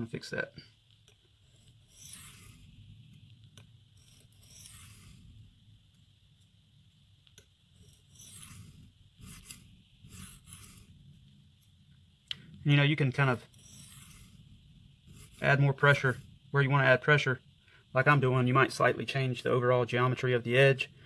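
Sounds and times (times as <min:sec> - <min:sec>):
knife scraping on sharpening plate: 0:01.5 - 0:02.6, 0:04.0 - 0:05.2, 0:07.8 - 0:10.9, 0:13.5 - 0:14.4.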